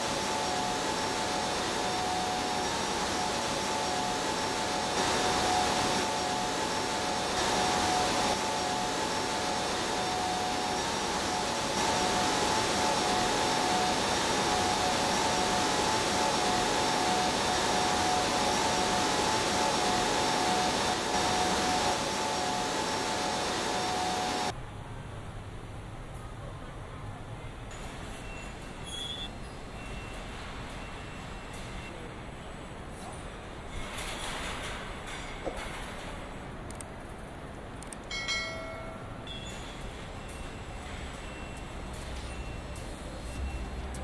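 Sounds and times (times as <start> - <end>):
steady machine whine: 0.0 - 24.5.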